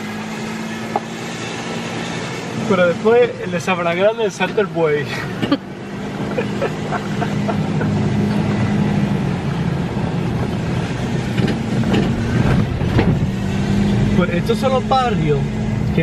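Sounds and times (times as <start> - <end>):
car engine drone: 0.0 - 16.0
tyre road noise: 0.0 - 16.0.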